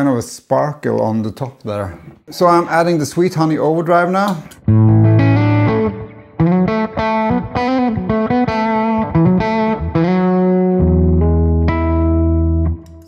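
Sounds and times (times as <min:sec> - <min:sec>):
overdriven electric guitar notes: 0:04.4 - 0:13.0.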